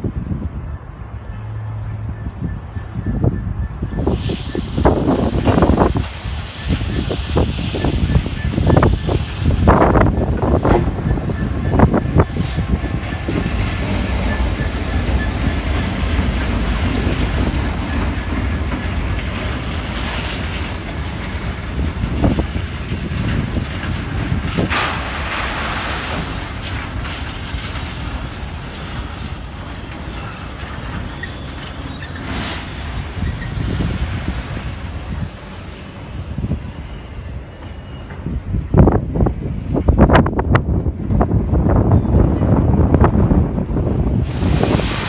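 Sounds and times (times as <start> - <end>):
diesel locomotive engine: 0.0 - 45.0
wagon wheels rumbling on rail: 1.5 - 45.0
wheels squealing: 2.5 - 38.4.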